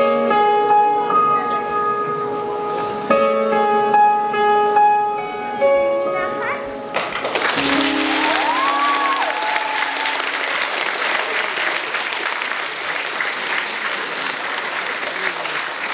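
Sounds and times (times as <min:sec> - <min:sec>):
audience applauding: 0:06.9 - 0:15.9.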